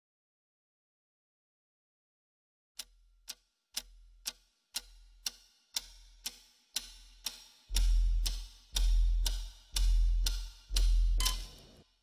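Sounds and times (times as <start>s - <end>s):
clock ticking: 2.8s - 11.8s
deep low pulse: 7.7s - 11.4s.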